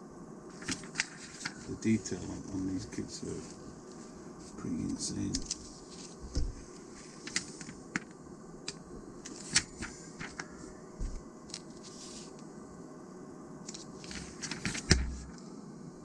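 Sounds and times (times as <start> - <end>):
magazine pages turning: 0.5 - 1.6, 13.7 - 15.3
soft thump: 6.2 - 6.6.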